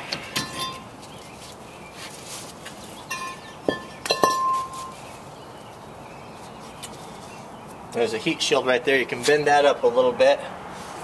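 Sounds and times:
metal brake rotor clinking: 0.1 - 0.9, 3.1 - 5.0.

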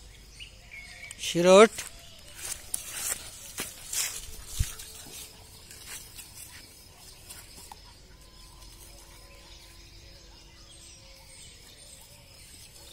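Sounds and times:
rustling in dry grass: 1.7 - 9.3.

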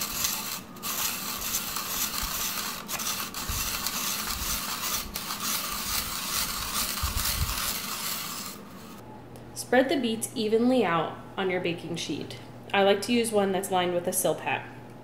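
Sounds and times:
spiralizer shredding beet: 0.0 - 9.0.

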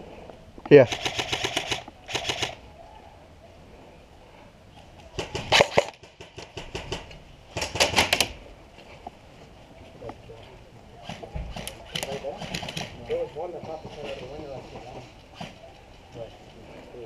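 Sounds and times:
airsoft guns firing bursts: 0.8 - 2.6, 5.2 - 8.3, 11.0 - 13.0.

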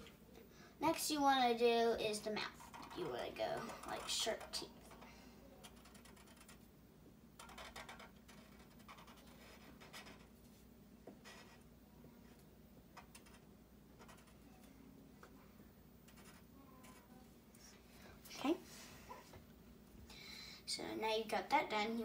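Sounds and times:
low room hum: 0.0 - 22.0
marker scratching on paper: 5.6 - 6.7, 7.4 - 10.3, 11.2 - 11.6, 13.0 - 14.4, 16.0 - 17.1.

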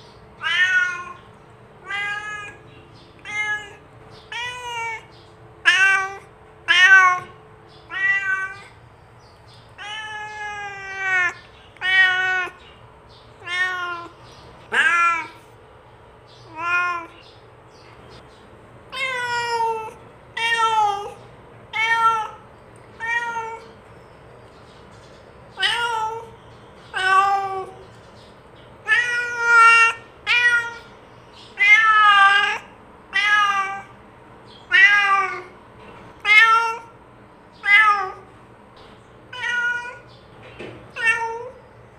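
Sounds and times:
cat meowing: 0.4 - 8.8, 9.8 - 12.6, 13.4 - 15.4, 16.4 - 17.3, 18.9 - 23.8, 25.6 - 27.8, 28.8 - 34.0, 34.6 - 35.6, 36.2 - 38.3, 39.3 - 40.1, 40.9 - 41.6.

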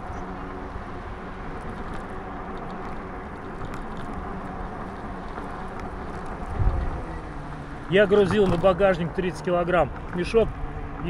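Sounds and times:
electric motor hum: 0.0 - 11.0
tyre noise on asphalt: 0.0 - 11.0
wind noise on microphone: 6.1 - 7.5.

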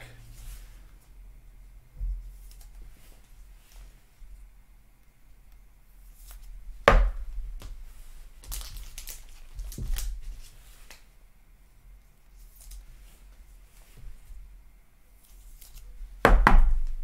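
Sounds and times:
plastic scraping and rustling: 8.4 - 11.0.

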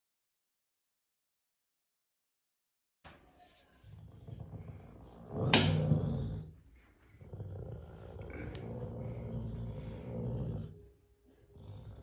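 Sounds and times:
wild cat low rumbling growl: 4.0 - 6.6, 7.2 - 10.8.

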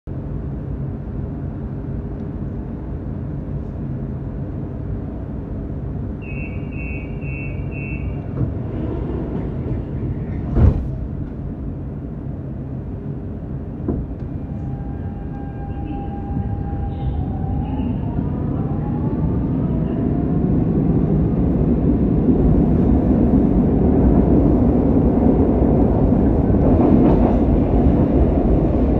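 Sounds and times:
train rumble: 0.1 - 28.9
short high beeps: 6.2 - 8.2.

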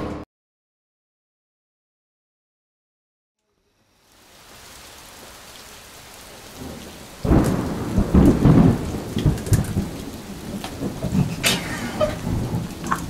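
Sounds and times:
rain: 3.4 - 13.0
thunder rumbling with crackles: 4.3 - 13.0.

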